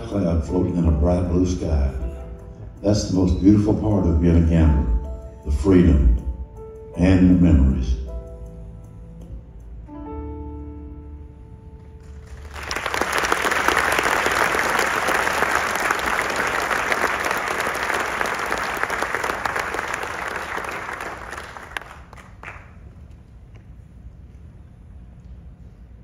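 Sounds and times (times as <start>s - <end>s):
audience applause: 12.2s - 22.8s.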